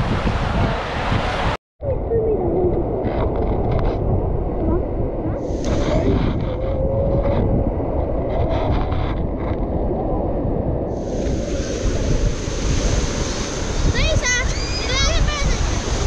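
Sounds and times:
wind buffeting microphone: 0.0 - 16.0
sea washing: 2.2 - 16.0
rush of hissing water: 5.4 - 6.6, 10.9 - 16.0.

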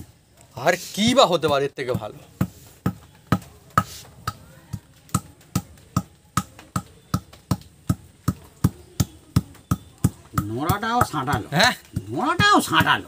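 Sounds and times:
stone pestle pounding on stone slab: 1.5 - 13.0.

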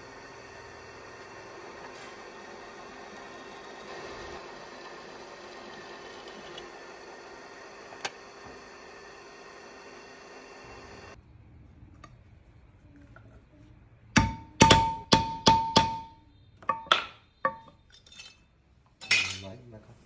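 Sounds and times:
hard metal strikes ringing: 14.2 - 16.2.

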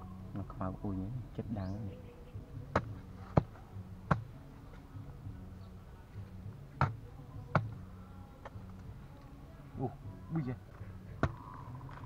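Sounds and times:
hard clay being struck: 2.7 - 4.4, 6.8 - 7.8, 11.2 - 11.5.

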